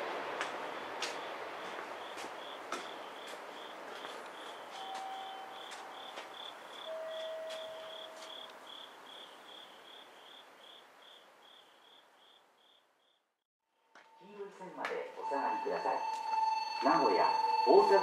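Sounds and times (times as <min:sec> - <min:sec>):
cricket chirping: 0:00.6 - 0:13.3.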